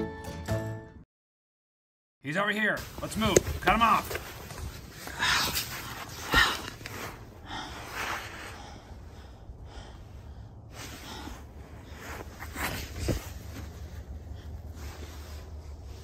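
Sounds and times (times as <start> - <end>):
person breathing hard: 5.0 - 12.5.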